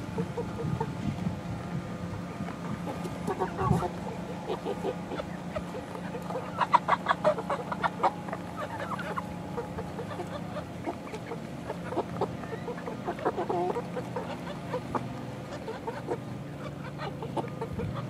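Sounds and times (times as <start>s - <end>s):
steady low hum: 0.0s - 18.0s
young chickens clucking: 0.0s - 18.0s.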